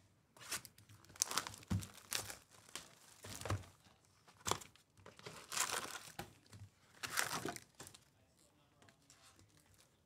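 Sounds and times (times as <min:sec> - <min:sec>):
plastic wrap crinkling and tearing: 0:00.4 - 0:03.6, 0:04.4 - 0:06.3, 0:06.9 - 0:08.0.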